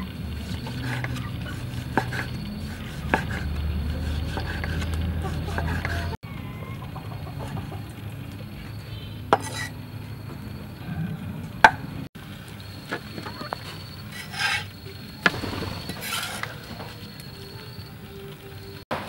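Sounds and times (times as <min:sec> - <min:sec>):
scraping onto metal tray: 0:09.3 - 0:09.7.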